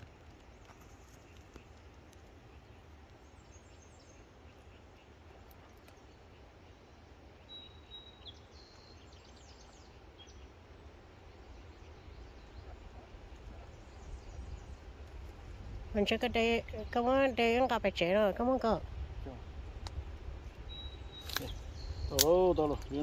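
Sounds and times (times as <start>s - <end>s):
distant bird chirps and whistles: 0.0s - 10.6s, 20.5s - 23.0s.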